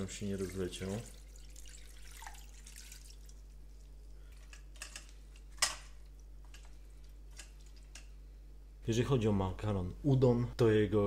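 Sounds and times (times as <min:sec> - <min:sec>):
water trickling from jug: 0:00.1 - 0:04.4
water dripping: 0:00.3 - 0:04.5.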